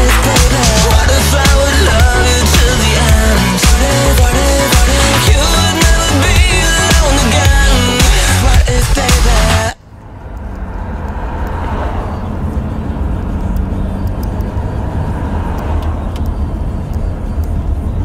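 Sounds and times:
song: 0.0 - 9.8.

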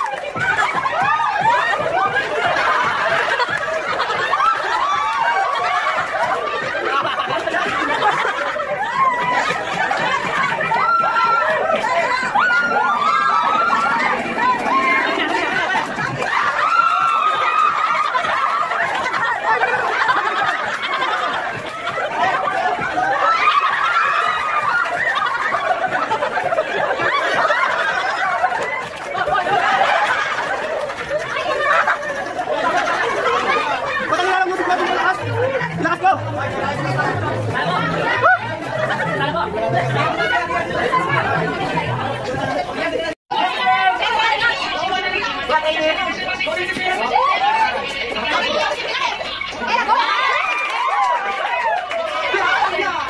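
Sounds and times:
people laughing and calling out: 0.0 - 53.0.

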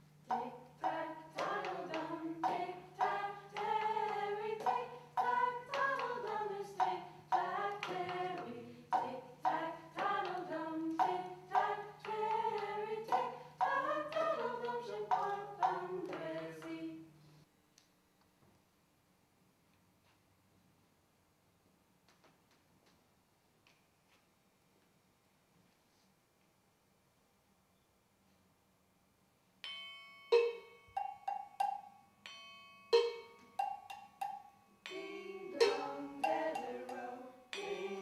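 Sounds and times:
person singing: 0.3 - 17.0, 34.9 - 38.0.

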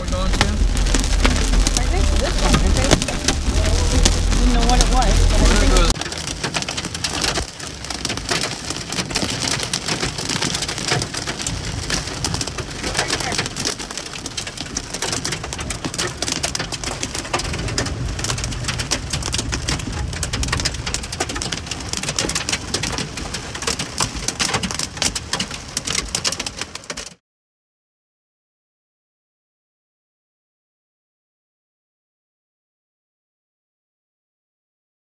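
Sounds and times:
hail and rain drumming on car roof: 0.0 - 27.2
moving car rumble: 0.0 - 27.2.

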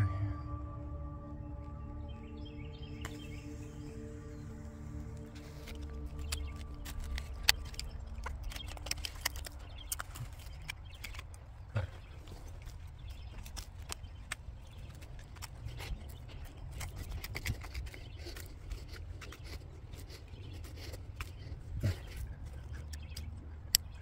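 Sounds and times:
low rumble: 0.0 - 18.8
fingers raking through gritty soil: 2.9 - 23.4.

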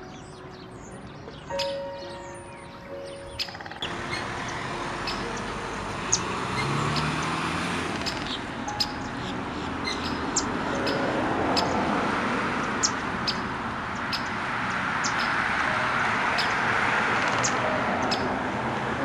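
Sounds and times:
small birds chirping: 0.0 - 11.9, 12.5 - 18.4
road traffic hum: 0.0 - 19.0.

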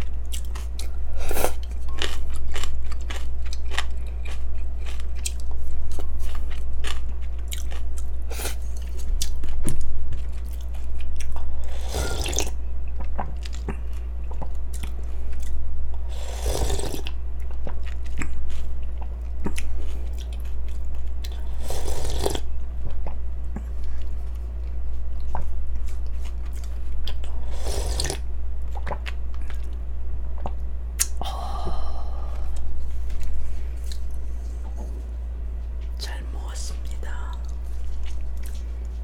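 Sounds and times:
chewing and crunching noodles: 0.0 - 29.8, 32.2 - 34.9, 37.1 - 39.0
steady low hum: 0.0 - 39.0.

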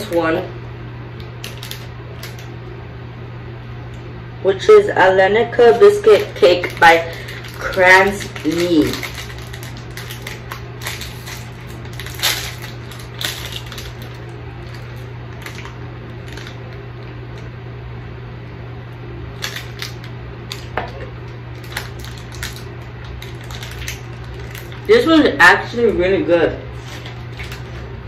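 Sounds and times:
steady low hum: 0.0 - 28.0
foil wrapper crinkling: 1.2 - 2.5, 5.7 - 16.8, 19.3 - 25.1, 26.7 - 28.0.

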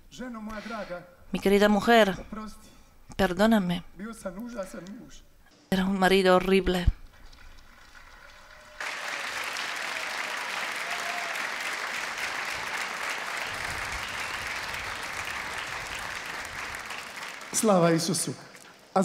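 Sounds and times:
large audience applauding: 7.4 - 18.8.

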